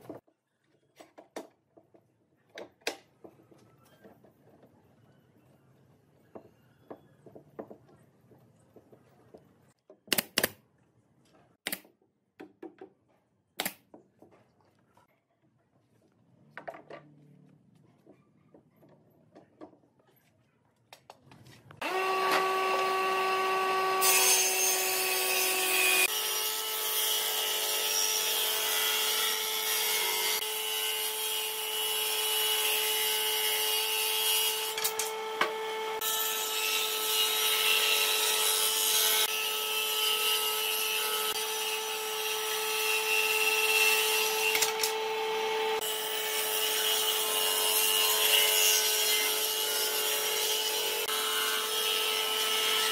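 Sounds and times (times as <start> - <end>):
electric power tool whining on wood: 21.8 - 26.8, 34.0 - 47.2.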